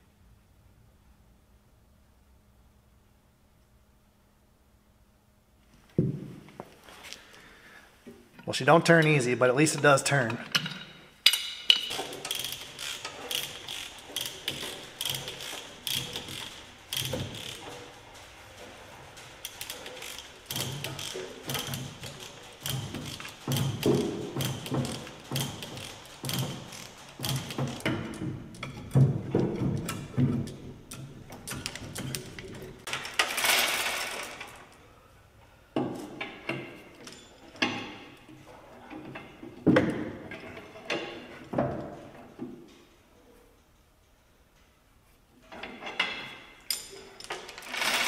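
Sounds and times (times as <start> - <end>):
tools clinking on metal: 10.1 - 13.8
chain hoist ratcheting clicks: 11.3 - 34.7, 46.7 - 48.0.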